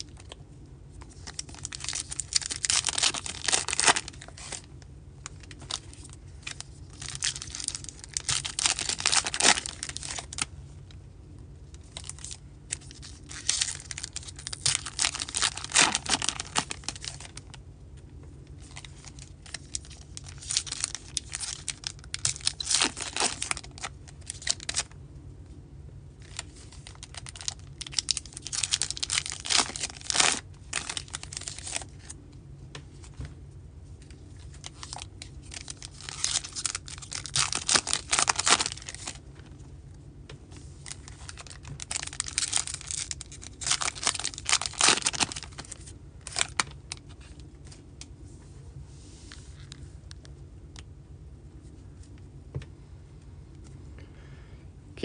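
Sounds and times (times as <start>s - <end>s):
foil wrappers crinkling and tearing: 1.0s - 10.5s, 11.7s - 17.6s, 18.5s - 25.0s, 26.2s - 32.2s, 34.0s - 39.2s, 40.8s - 47.8s.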